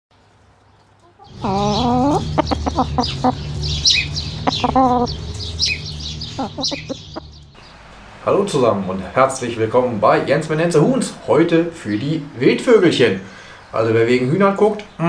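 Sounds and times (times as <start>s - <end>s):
chickens clucking: 1.0s - 7.5s.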